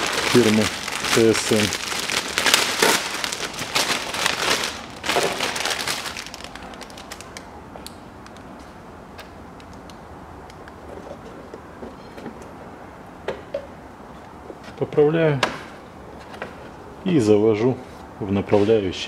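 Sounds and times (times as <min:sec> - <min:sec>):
plastic packaging crinkling and tearing: 0:00.0 - 0:07.5.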